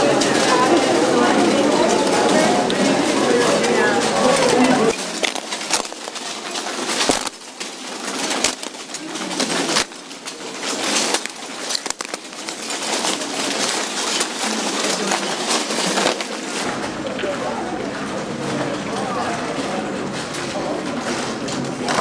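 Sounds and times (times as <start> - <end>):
footsteps crunching on clay tiles: 4.2 - 16.7.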